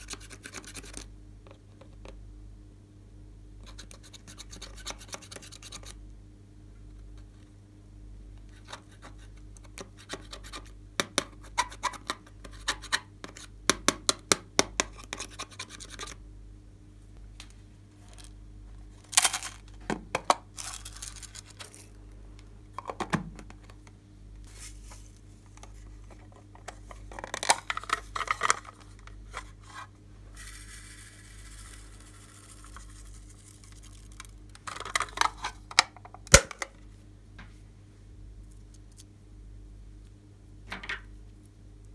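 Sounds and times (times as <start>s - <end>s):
handling noises: 17.3s - 30.5s.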